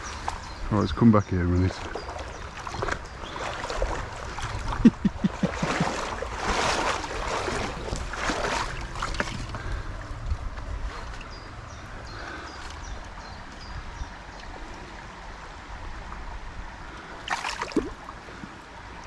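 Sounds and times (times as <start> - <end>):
river water rushing and splashing: 0.0 - 19.0.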